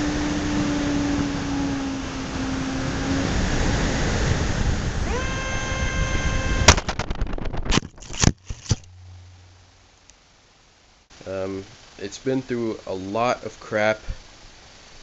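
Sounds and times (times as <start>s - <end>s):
ducted-fan whine and air rush: 0.0s - 15.0s
cracks and knocks tumbling: 6.7s - 8.9s
faint low hum: 8.1s - 14.8s.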